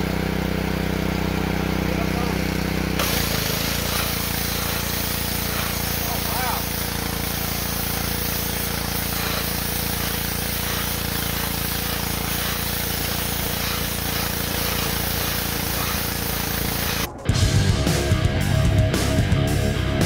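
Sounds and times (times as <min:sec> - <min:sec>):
pressure washer engine running: 0:00.0 - 0:20.0
nozzle hissing spray: 0:03.0 - 0:17.1.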